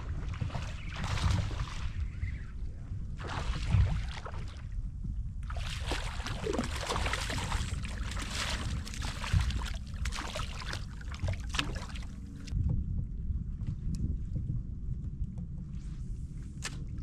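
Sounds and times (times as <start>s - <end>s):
steady low rumble: 0.0s - 17.0s
fish splashing at water surface: 5.5s - 12.1s.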